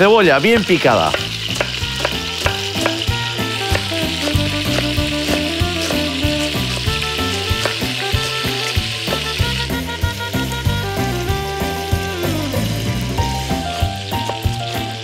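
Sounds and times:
meat sizzling in hot oil: 0.0s - 15.0s
knife chopping on wooden board: 1.1s - 6.2s, 7.5s - 8.0s.

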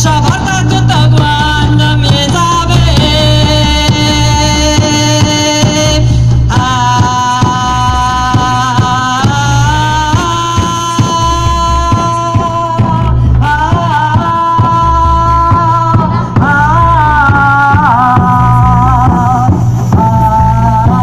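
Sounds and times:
frame drums beating: 0.0s - 21.0s
woman singing: 0.0s - 21.0s.

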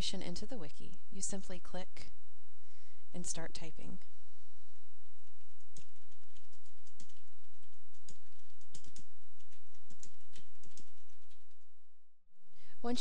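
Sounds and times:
steady low hum: 0.0s - 13.0s
keyboard typing: 5.2s - 11.7s.

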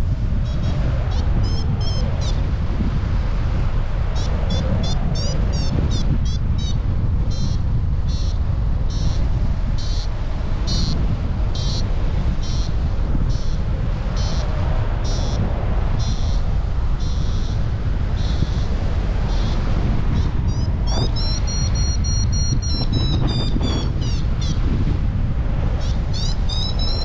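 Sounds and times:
wind on microphone: 0.0s - 27.0s
variometer beeping: 20.2s - 24.6s.

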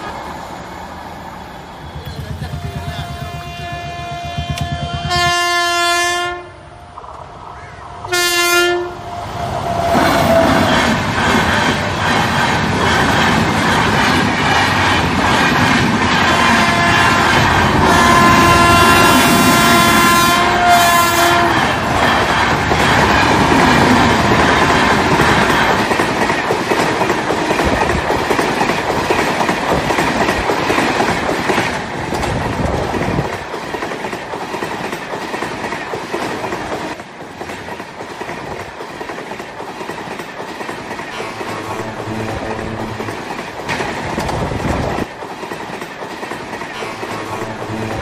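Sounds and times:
freight train wagons rattling: 1.8s - 5.4s, 21.1s - 47.9s
locomotive horn: 2.5s - 6.6s, 8.1s - 9.1s, 16.4s - 21.8s, 41.1s - 43.4s, 46.8s - 48.0s.

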